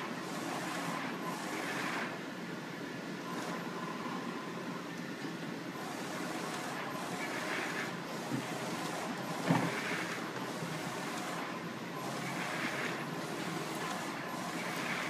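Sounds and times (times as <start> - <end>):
textile printer whirring: 0.0 - 15.0.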